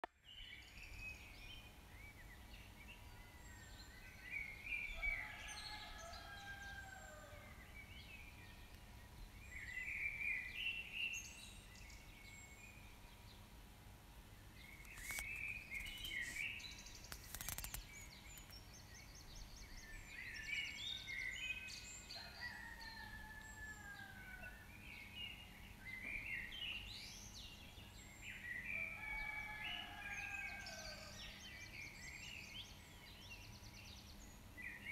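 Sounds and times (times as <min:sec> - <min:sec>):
birds chirping: 0:14.4 - 0:21.3
sharp clicks: 0:17.1 - 0:18.6.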